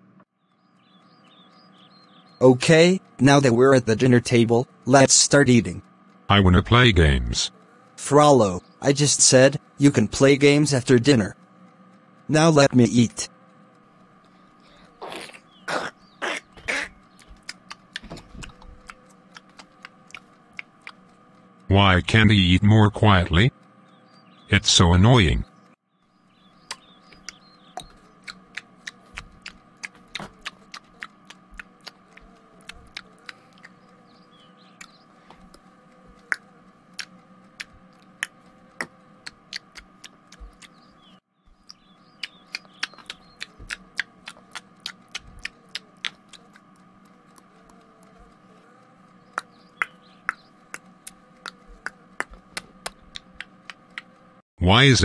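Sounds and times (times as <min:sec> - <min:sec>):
steady low hum: 0:00.0 - 0:55.0
noisy chewing with clicks: 0:13.8 - 0:21.6, 0:26.4 - 0:54.3.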